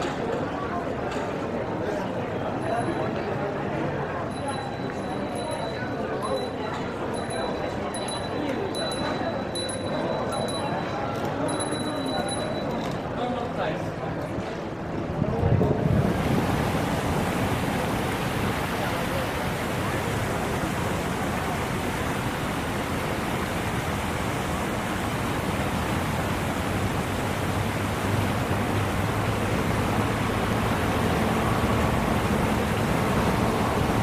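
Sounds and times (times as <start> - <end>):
faint voices of people: 0.0 - 24.7
steady rushing noise: 14.8 - 34.0.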